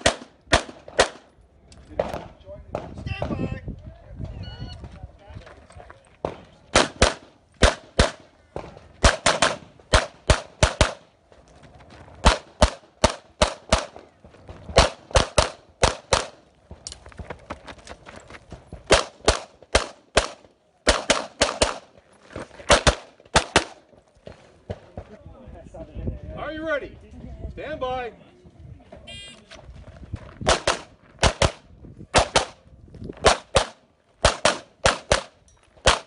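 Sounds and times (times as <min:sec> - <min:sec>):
pistol shots: 0:00.0 - 0:01.3, 0:06.2 - 0:11.1, 0:12.2 - 0:14.0, 0:14.7 - 0:16.5, 0:18.9 - 0:21.9, 0:22.7 - 0:23.8, 0:30.4 - 0:32.6, 0:33.2 - 0:36.0.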